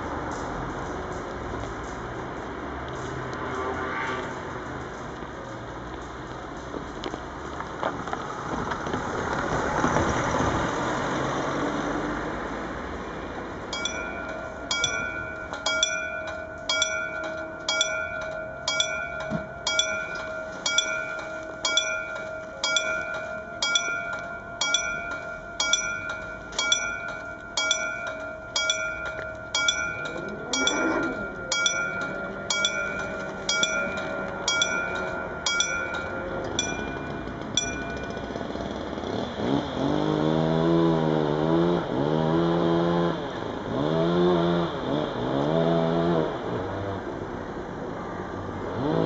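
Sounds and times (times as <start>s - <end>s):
electric train rumbling: 0.0s - 40.3s
level crossing warning bell: 12.9s - 39.6s.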